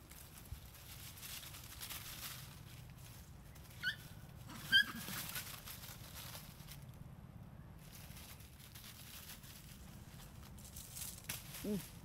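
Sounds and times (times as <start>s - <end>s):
baby monkey squeaking: 3.8s - 4.0s, 4.6s - 5.1s.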